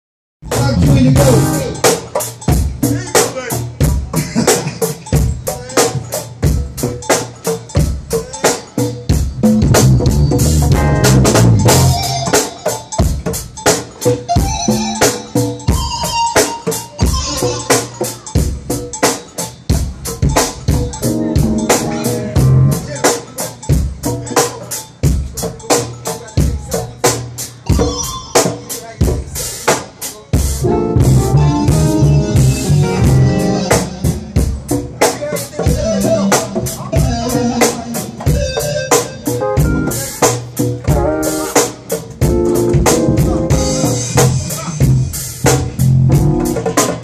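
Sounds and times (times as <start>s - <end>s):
congas playing: 0.4s - 47.0s
drum kit fast beat: 0.4s - 47.0s
held pitched notes: 0.6s - 2.1s, 9.4s - 18.3s, 20.3s - 23.1s, 30.6s - 34.8s, 35.7s - 40.3s.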